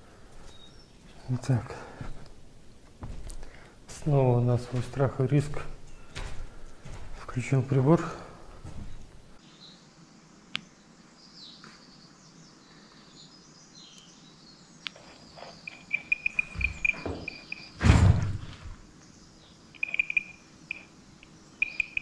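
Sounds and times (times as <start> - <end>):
electronic detector beeping: 15.6 - 17.8, 19.8 - 22.0
loud bump: 17.8 - 18.5.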